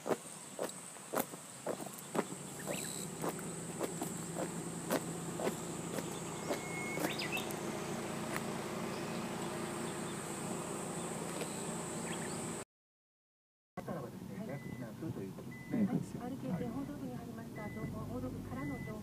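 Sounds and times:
footsteps on wet asphalt: 0:00.0 - 0:11.9
high insect drone: 0:00.0 - 0:12.6
chirp: 0:00.2 - 0:03.6, 0:05.4 - 0:08.1, 0:08.8 - 0:12.6.

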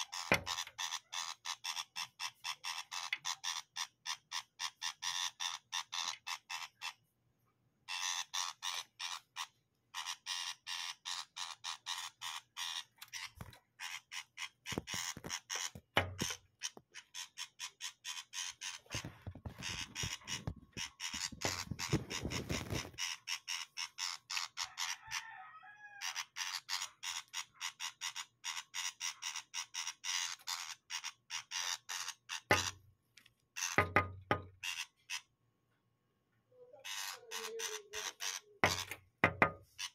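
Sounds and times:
bird rattling chatter: 0:07.9 - 0:25.1.

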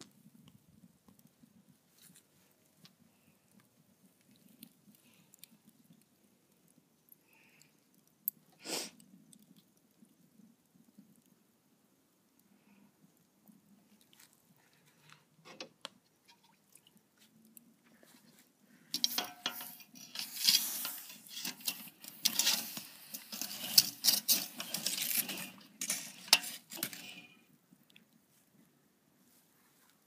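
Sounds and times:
wood fire crackling: 0:00.0 - 0:28.3
axe scraping through hot coals: 0:18.9 - 0:27.5.

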